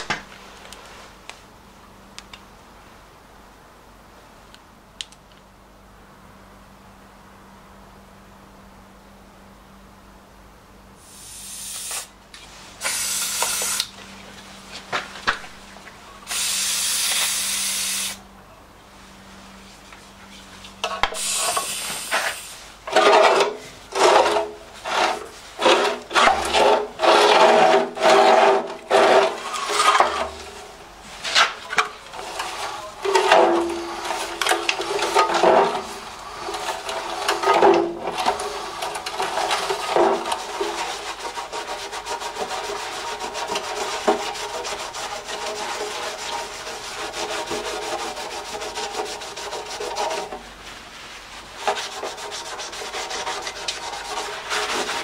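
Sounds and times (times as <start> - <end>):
short steady hisses: 11.0 - 13.9, 16.2 - 18.2, 21.2 - 22.8
rubbing scraping strokes: 21.2 - 31.4, 38.2 - 55.0.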